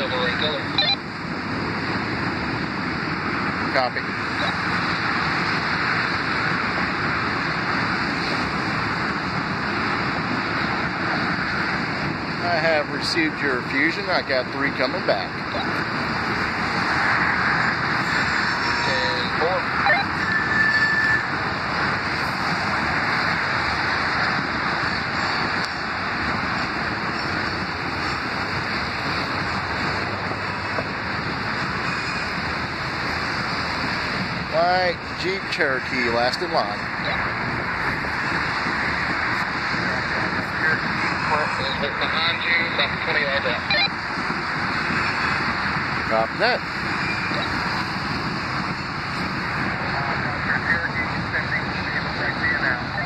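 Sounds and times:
freight train rolling past: 15.6 - 43.0.

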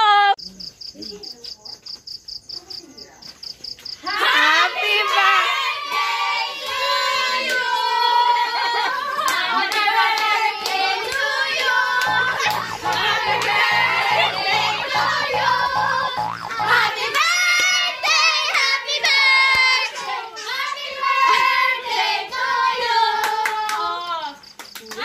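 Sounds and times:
group singing birthday song: 4.0 - 24.0
hand claps: 9.3 - 15.3, 24.5 - 25.0
faint high-pitched pulses: 12.0 - 17.5.

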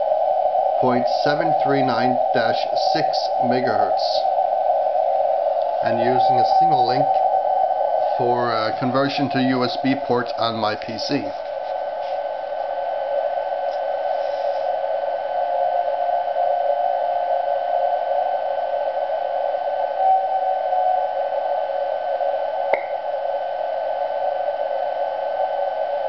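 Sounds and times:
faint whistle tones: 0.0 - 12.6, 19.4 - 21.5
radio receiver hiss: 0.0 - 26.0.

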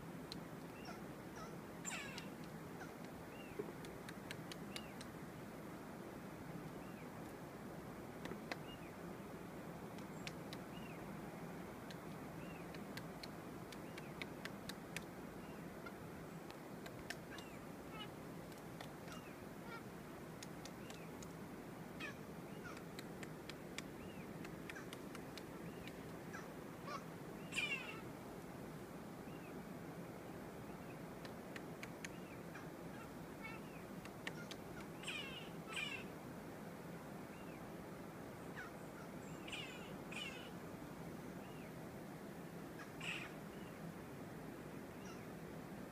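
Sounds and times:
steady background hiss: 0.0 - 45.9
bird calls rising and falling: 0.8 - 3.7, 25.6 - 28.1
woodpecker scratchy calls: 0.8 - 5.1, 16.8 - 19.8, 22.0 - 28.0, 31.8 - 36.1, 39.4 - 40.5, 42.8 - 43.4
woodpecker tapping on branch: 1.9 - 5.1, 8.2 - 8.7, 11.9 - 15.1, 16.5 - 17.6, 18.5 - 19.2, 20.4 - 21.4, 22.6 - 26.2, 34.0 - 35.0.

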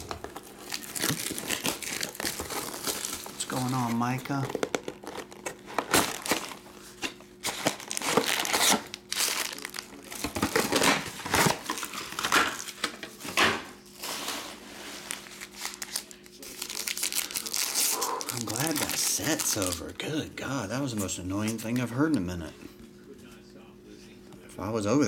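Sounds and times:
card pack wrappers crinkling: 0.0 - 13.0, 15.0 - 20.3
card packs being torn open: 0.0 - 13.1, 15.0 - 20.2.

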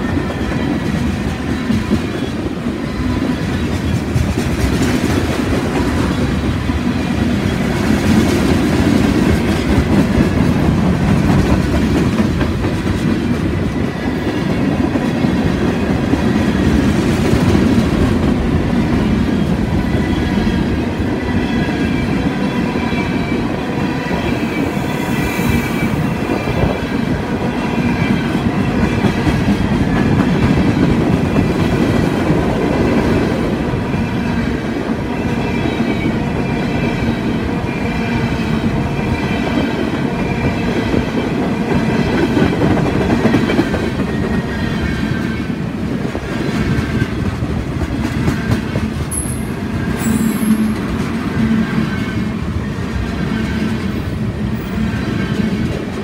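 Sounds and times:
freight train wheels clattering: 0.0 - 37.9.

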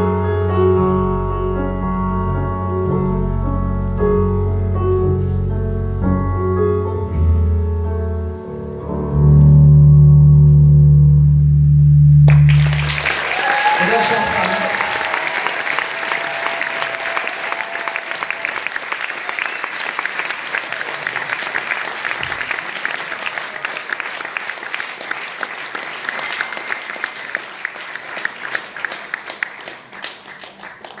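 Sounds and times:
audience applauding: 12.3 - 31.0.

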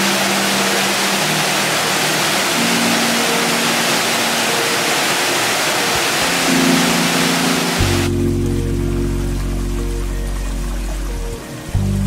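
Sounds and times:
waterfall rushing: 0.0 - 11.8
soft background music: 0.0 - 12.0.

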